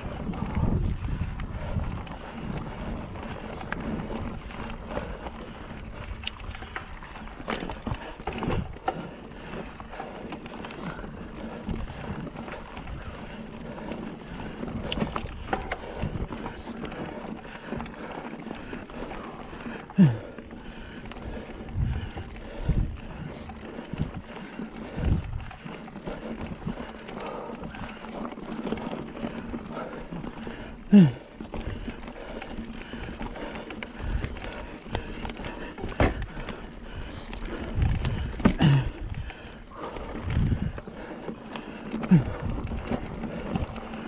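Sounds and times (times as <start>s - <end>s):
wind on the microphone: 0.0s - 5.0s, 21.3s - 25.6s, 35.8s - 40.8s
bike knocks and rattles: 30.5s - 40.8s.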